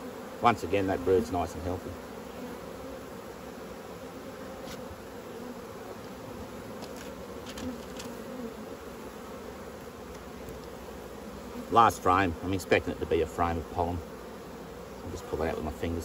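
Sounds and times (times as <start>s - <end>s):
honeybees buzzing: 0.0s - 16.0s
faint ticks: 10.0s - 10.8s.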